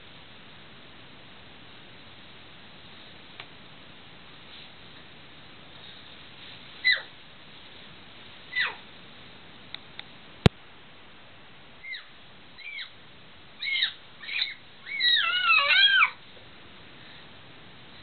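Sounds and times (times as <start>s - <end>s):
baby squealing: 6.8s - 7.1s, 8.5s - 8.8s, 11.9s - 12.9s, 13.6s - 16.2s.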